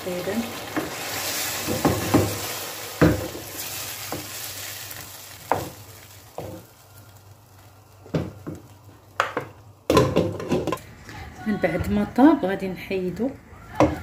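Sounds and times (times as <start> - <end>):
chicken sizzling in a frying pan: 0.0 - 10.8.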